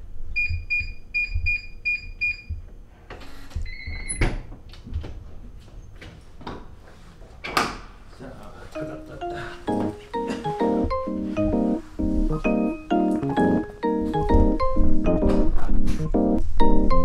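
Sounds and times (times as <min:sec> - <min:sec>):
keypad beeps: 0:00.4 - 0:02.5.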